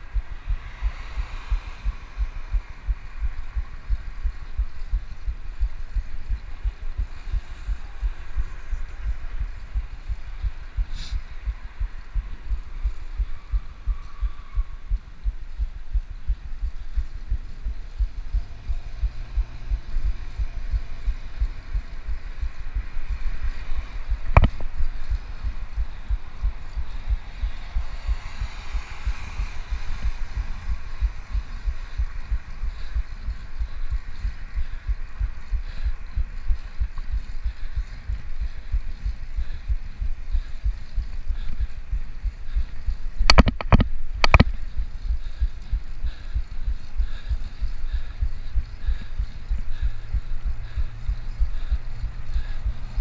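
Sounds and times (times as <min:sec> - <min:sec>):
car passing close: 0:00.0 - 0:03.5, 0:18.3 - 0:32.6
wind buffeting microphone: 0:00.0 - 0:53.0.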